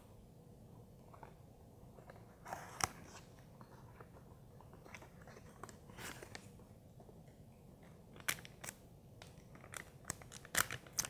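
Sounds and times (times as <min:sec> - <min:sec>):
rustling packaging: 0:08.1 - 0:11.0.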